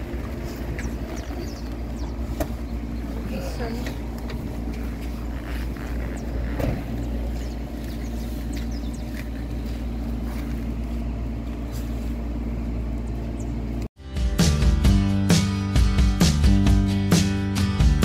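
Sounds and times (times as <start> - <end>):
engine idling: 0.0 - 13.9
boot scraping and knocking: 3.9 - 12.0.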